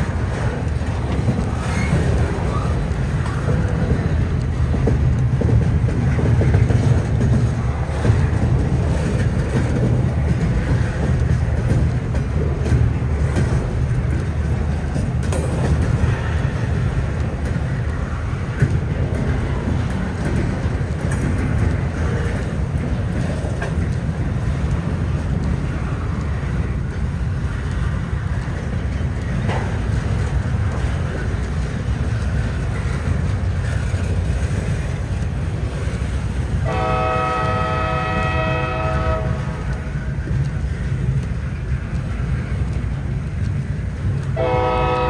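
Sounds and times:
train rolling past: 0.0s - 45.0s
locomotive horn blast: 36.6s - 39.6s, 44.4s - 45.0s.

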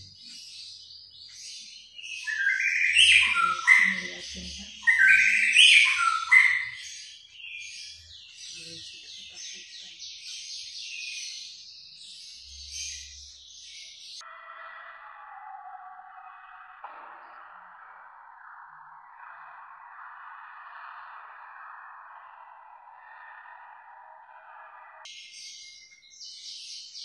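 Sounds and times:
bird singing whistled phrases: 2.0s - 6.8s.

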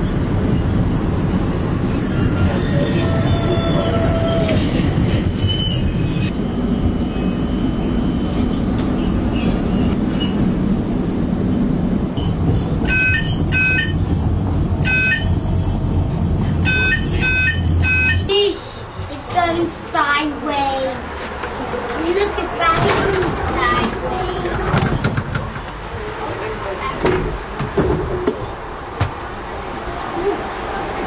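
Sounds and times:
tram rumbling: 0.0s - 31.0s
door warning beeps: 2.7s - 14.1s, 14.8s - 15.5s, 16.6s - 18.3s.

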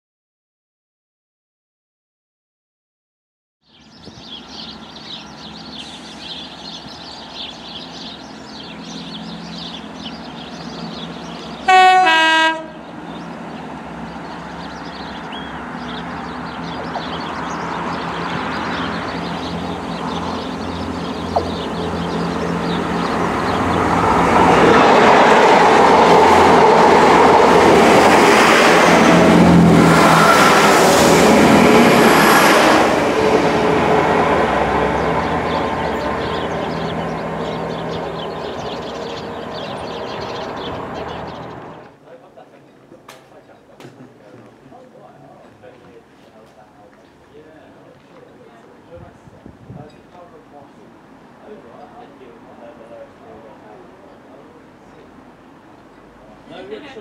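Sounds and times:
train rumbling past: 3.9s - 42.1s
two-tone train horn: 11.6s - 12.8s.

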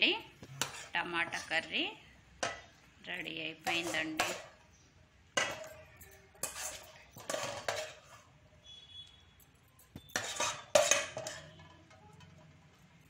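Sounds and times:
steel spoon scraping pan: 0.4s - 1.8s, 3.6s - 4.6s, 5.4s - 9.1s, 9.9s - 12.5s.

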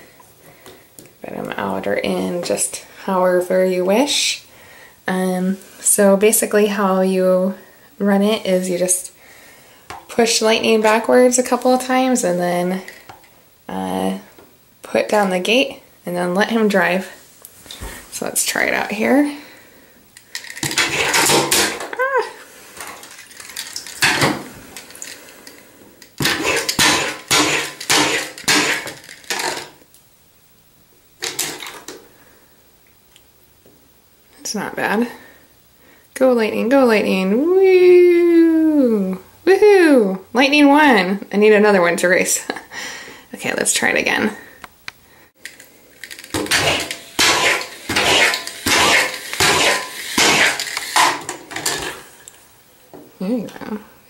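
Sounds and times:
plastic toys clattering on bathtub: 20.2s - 22.0s, 22.8s - 29.8s, 31.2s - 32.0s, 45.4s - 52.3s
toy car motor winding: 46.1s - 51.1s.

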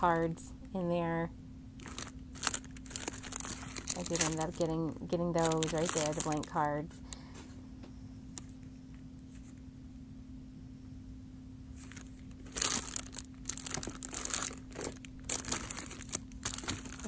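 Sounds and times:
faint steady hum: 0.0s - 17.0s
plastic packages crinkling: 1.8s - 7.3s, 11.8s - 17.0s.

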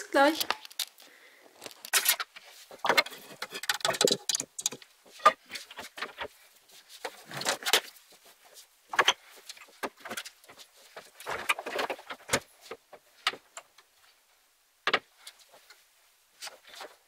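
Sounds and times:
objects clattering: 0.2s - 6.3s.

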